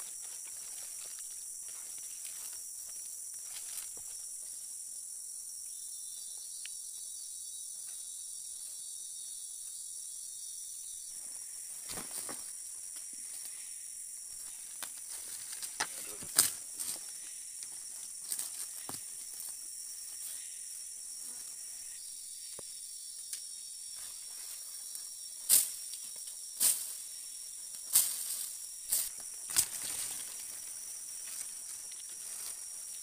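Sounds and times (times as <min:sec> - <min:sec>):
footsteps through undergrowth: 0:00.0 - 0:04.4, 0:11.4 - 0:13.5, 0:14.3 - 0:20.5, 0:27.7 - 0:33.0
rainforest insects droning: 0:00.0 - 0:33.0
twigs and dry leaves cracking: 0:14.7 - 0:17.0, 0:27.9 - 0:33.0.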